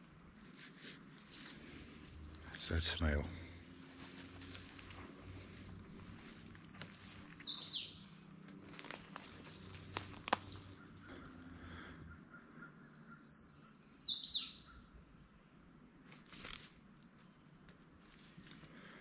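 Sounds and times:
songbird chirping: 0:02.4 - 0:15.6.

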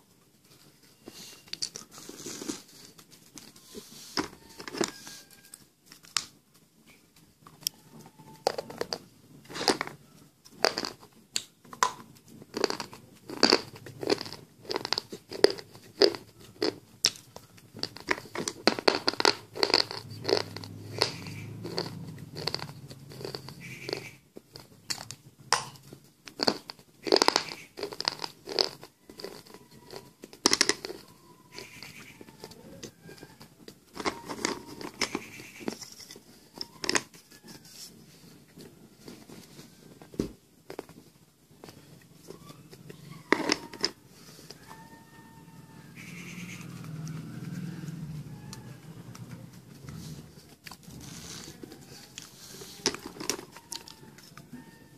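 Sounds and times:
dry crunching while chewing: 0:01.4 - 0:03.4, 0:08.4 - 0:37.1, 0:46.6 - 0:54.8.

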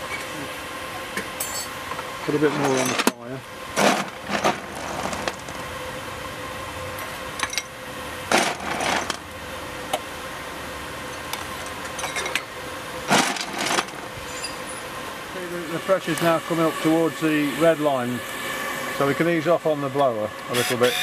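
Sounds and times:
blower hiss and hum: 0:00.0 - 0:21.0
shovel scraping: 0:03.8 - 0:05.4
coal clattering: 0:03.8 - 0:05.6, 0:13.1 - 0:14.5.

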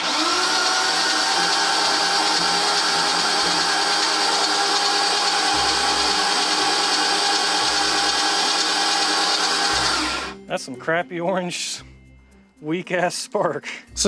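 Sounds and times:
engine cranking on starter motor: 0:00.0 - 0:10.4.

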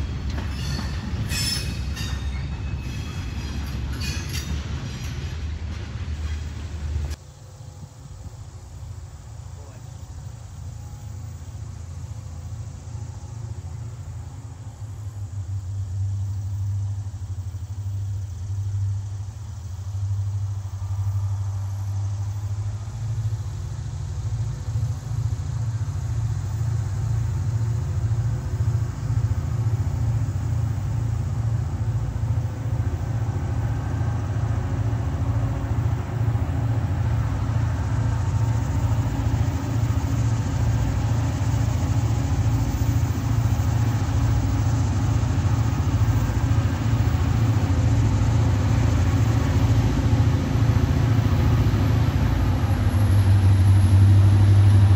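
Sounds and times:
diesel locomotive engine rumbling: 0:00.0 - 0:54.9.

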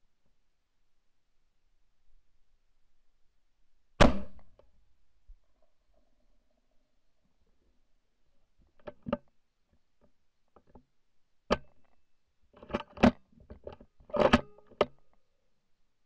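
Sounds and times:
rifle handling clicks and knocks: 0:08.6 - 0:10.9, 0:11.5 - 0:12.0, 0:12.6 - 0:15.2.

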